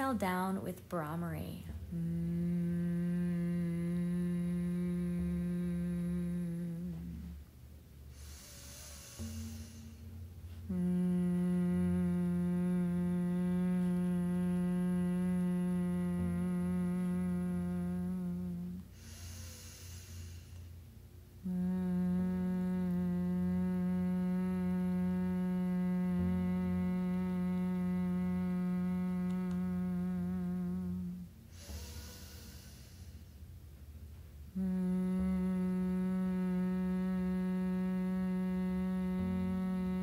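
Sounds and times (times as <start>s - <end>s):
woman humming low note: 0.0s - 7.6s, 8.2s - 20.4s, 21.4s - 33.2s, 34.5s - 40.0s
breathy inhale: 8.1s - 10.2s, 18.9s - 20.8s, 31.5s - 33.4s.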